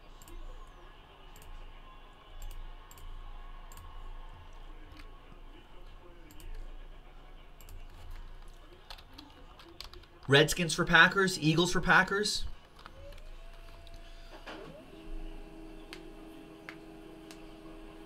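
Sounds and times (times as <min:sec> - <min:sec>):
computer mouse clicking: 0:01.4 - 0:01.6, 0:02.4 - 0:03.9, 0:06.3 - 0:06.7, 0:07.6 - 0:10.2.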